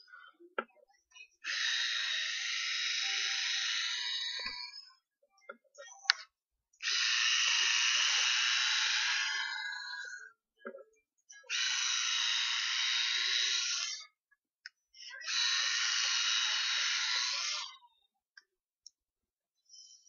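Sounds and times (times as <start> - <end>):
rotating hair styler brush: 6.8 - 10.0, 15.2 - 17.8.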